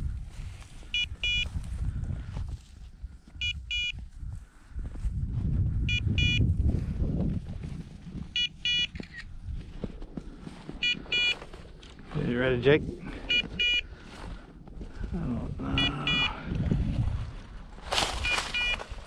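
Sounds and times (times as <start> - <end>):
wind: 0.0 - 19.0
high double electronic beep: 1.0 - 1.4, 5.9 - 6.4, 8.4 - 8.9, 10.8 - 11.4, 13.3 - 13.8, 15.7 - 16.4
footsteps: 6.6 - 15.2, 16.5 - 19.0.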